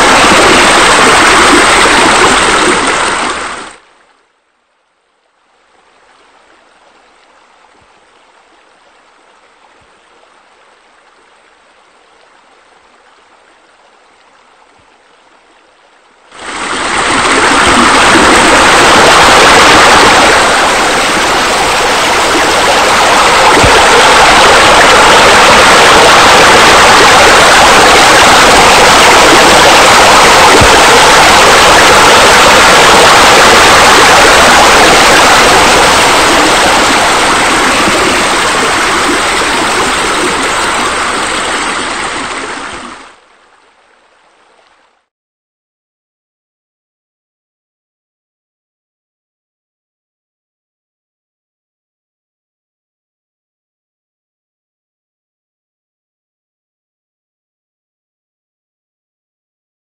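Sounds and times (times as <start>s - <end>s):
rushing splashing water: 0.0s - 3.9s, 16.3s - 43.2s.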